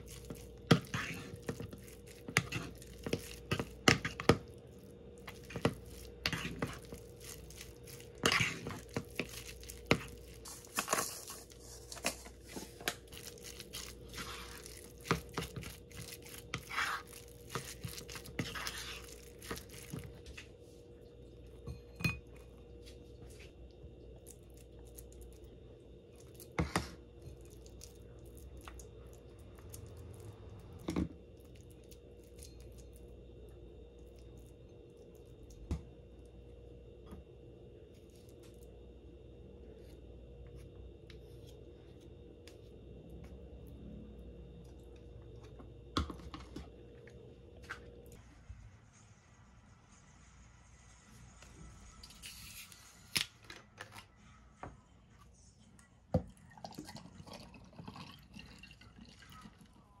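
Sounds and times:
wooden spoon stirring thick filling: 0.0s - 20.8s
faint steady hum: 0.0s - 60.0s
fork scraping a ceramic bowl: 0.2s - 4.3s, 5.3s - 7.0s, 7.9s - 12.6s.

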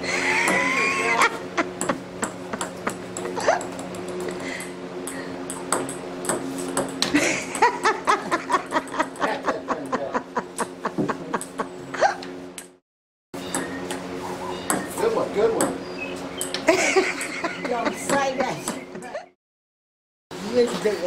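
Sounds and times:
low steady hum: 0.0s - 12.7s
ping-pong ball hits: 1.8s - 4.2s, 5.0s - 7.2s, 14.7s - 15.8s.

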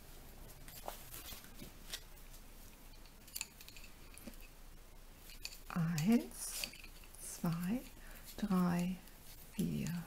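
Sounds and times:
knitting needles clicking: 5.3s - 9.0s.

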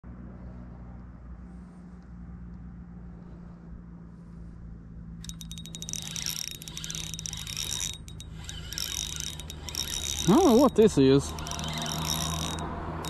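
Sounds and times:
low steady rumble: 0.1s - 13.0s
fishing reel clicking and whining: 5.2s - 13.0s.

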